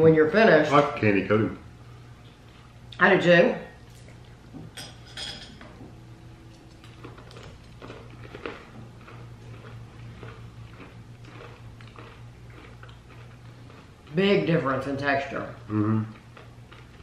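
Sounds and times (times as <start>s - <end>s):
low steady hum: 0.0s - 17.0s
crunchy chewing: 6.5s - 14.6s, 15.6s - 17.0s.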